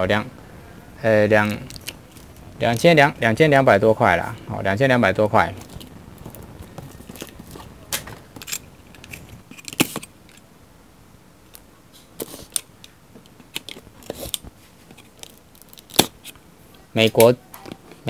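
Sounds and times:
cardboard and plastic rustling: 5.4s - 10.4s, 12.0s - 16.4s.

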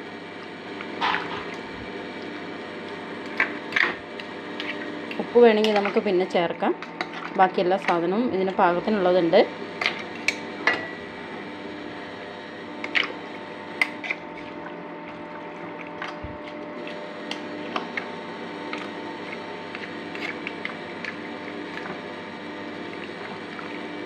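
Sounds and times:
spoon stirring wet food: 0.7s - 8.1s, 12.7s - 24.0s.

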